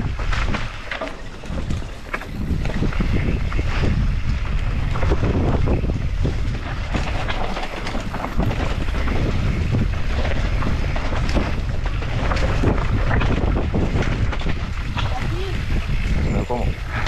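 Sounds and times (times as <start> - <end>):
bike knocking and rattling: 0.0 - 17.0
wind rumbling on microphone: 0.0 - 17.0.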